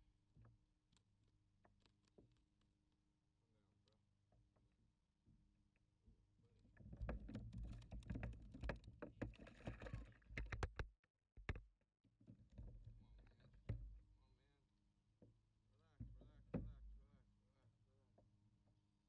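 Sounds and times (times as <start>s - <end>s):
knocks and taps on plastic kayak: 6.8s - 11.7s, 16.0s - 17.0s.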